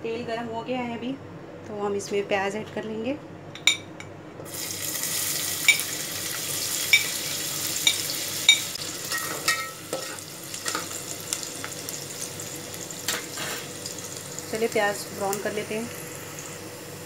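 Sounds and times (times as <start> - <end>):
onions sizzling in hot oil: 4.4 - 17.0
metal spoon clinking: 7.8 - 10.8.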